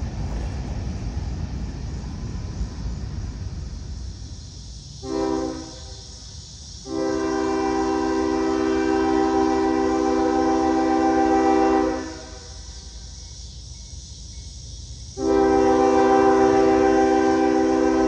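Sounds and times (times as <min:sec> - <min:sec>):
low rail rumble: 0:00.0 - 0:18.0
locomotive air horn chord: 0:05.0 - 0:06.0, 0:06.8 - 0:12.7, 0:15.2 - 0:18.0.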